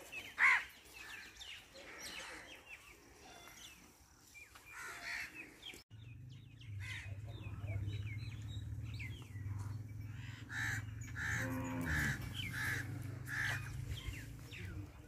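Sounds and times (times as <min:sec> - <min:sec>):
small birds chirping: 0:00.0 - 0:15.0
crow cawing: 0:10.2 - 0:13.6.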